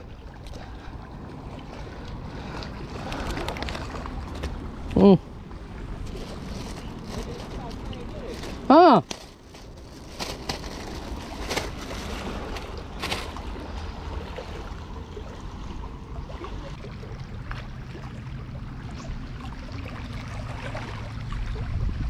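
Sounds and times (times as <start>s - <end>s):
sea water lapping on rocks: 0.0s - 5.0s, 5.6s - 22.0s
plastic bag crinkling: 6.1s - 13.4s
wind rumble on microphone: 9.5s - 22.0s.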